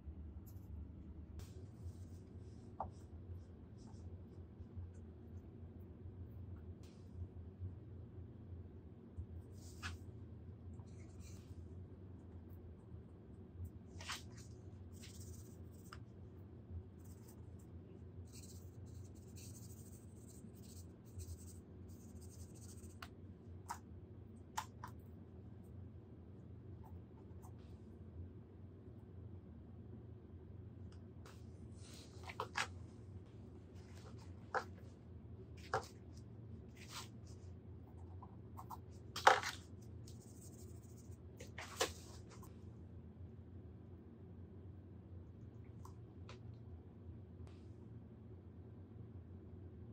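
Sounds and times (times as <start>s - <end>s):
low steady hum: 0.0s - 49.9s
paintbrush scraping and tapping: 1.4s - 4.1s, 14.0s - 16.1s, 18.3s - 23.8s, 31.8s - 32.8s, 33.8s - 34.9s, 35.6s - 42.5s
paintbrush scratchy strokes: 14.0s - 16.0s, 17.0s - 17.6s, 18.2s - 23.0s, 36.7s - 39.0s.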